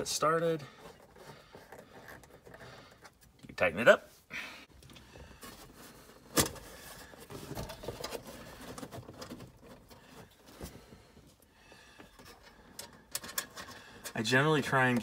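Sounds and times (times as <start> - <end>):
cardboard rustling: 5.1 - 11.2.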